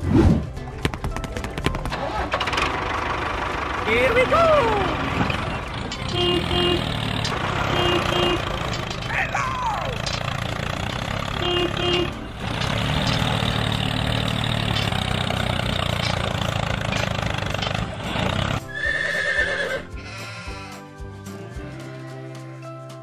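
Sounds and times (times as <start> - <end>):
music: 0.0 - 3.0, 3.8 - 6.6, 8.7 - 10.2, 18.5 - 23.0
tractor engine running: 0.0 - 22.0
horse whinny: 18.6 - 20.8.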